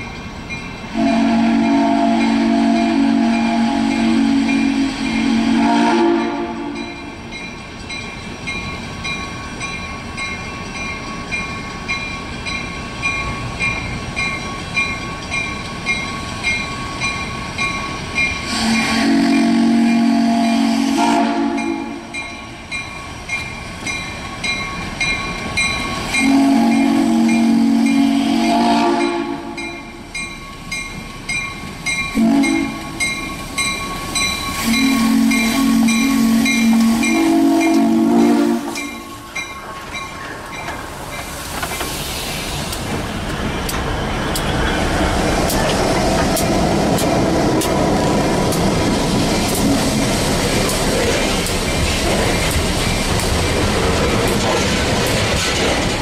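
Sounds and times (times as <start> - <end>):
locomotive bell ringing: 0.0 - 20.7, 21.5 - 28.3, 29.0 - 41.4
steam locomotive whistle: 0.9 - 7.1, 18.4 - 22.2, 26.0 - 30.0, 32.1 - 39.4, 49.5 - 50.2.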